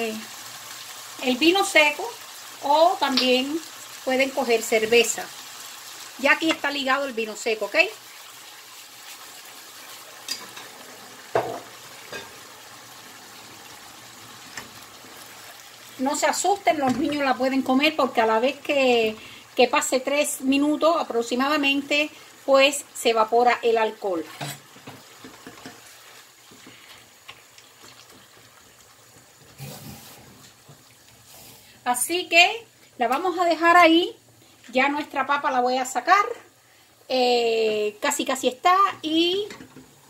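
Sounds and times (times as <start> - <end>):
meat sizzling in a frying pan: 0.0 - 40.0
spatula stirring in a pan: 8.0 - 11.0, 24.2 - 31.8.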